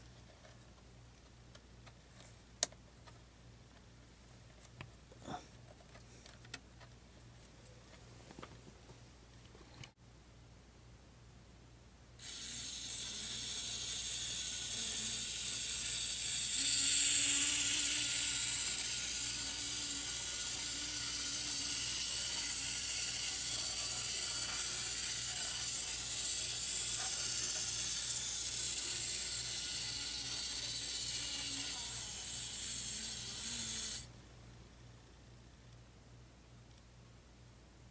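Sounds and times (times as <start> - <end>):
tiny electric motor whirring: 12.2 - 34.1.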